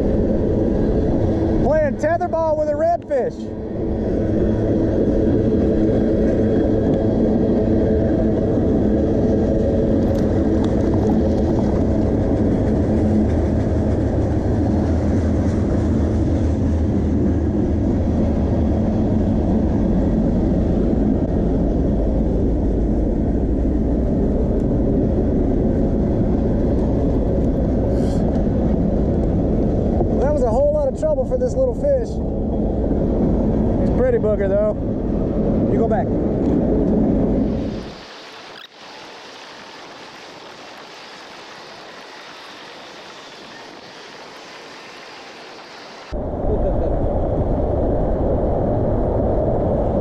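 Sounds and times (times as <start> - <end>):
freight train rumbling past: 3.5 - 30.8.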